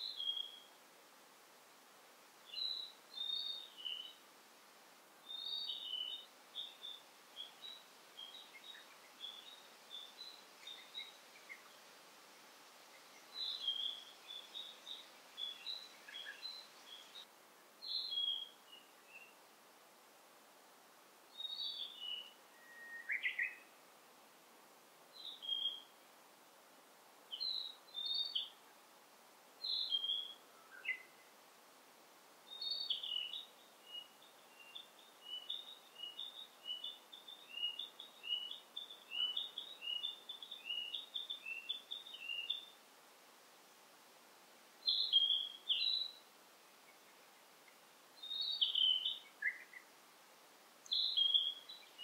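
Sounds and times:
songbirds singing: 0.0 - 0.8, 2.4 - 4.2, 5.2 - 19.4, 21.3 - 23.8, 25.1 - 26.0, 27.3 - 28.8, 29.6 - 31.3, 32.5 - 42.8, 44.8 - 50.0, 50.8 - 52.0
faint steady hiss: 0.0 - 52.0.

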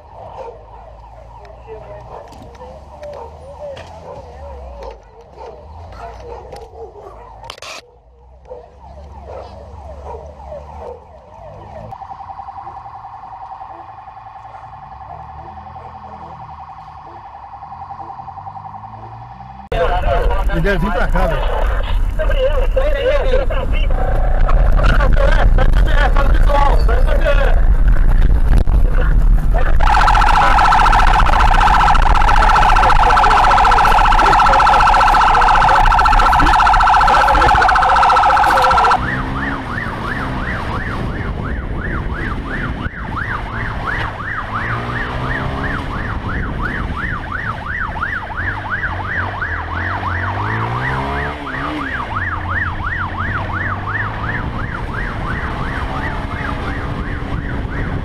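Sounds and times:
steady siren tone: 0.0 - 4.6, 8.6 - 20.4, 29.5 - 58.0
yelp siren: 0.0 - 20.4, 29.6 - 58.0
motorcycle engine revving: 29.6 - 47.4, 48.3 - 58.0.

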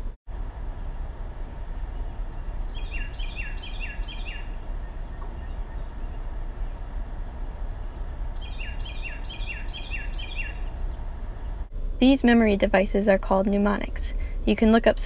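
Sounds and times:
low background rumble: 0.0 - 15.0
wren singing: 0.5 - 11.7.

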